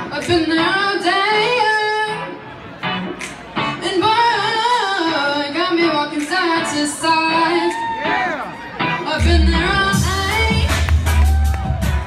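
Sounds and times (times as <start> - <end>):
woman singing: 0.0 - 2.4, 3.8 - 8.0, 8.8 - 11.3.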